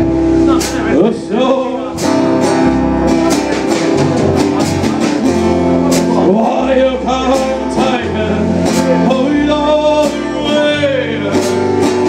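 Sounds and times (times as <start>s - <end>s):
acoustic guitar strumming: 0.0s - 12.0s
plucked double bass: 0.0s - 12.0s.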